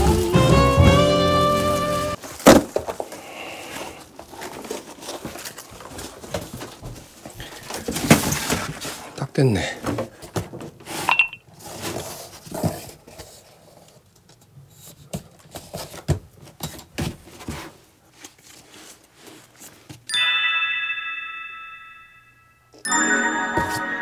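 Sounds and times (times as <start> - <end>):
bell-like music chime: 20.1 - 24.0.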